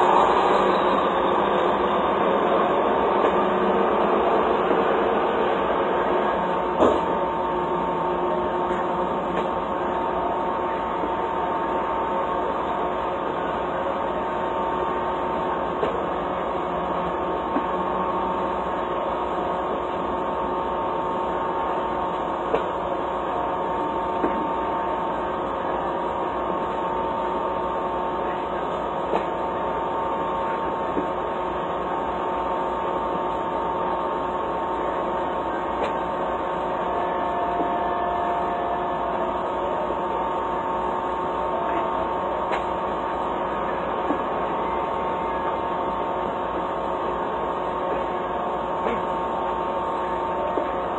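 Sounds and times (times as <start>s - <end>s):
steady mechanical hum: 0.0s - 50.9s.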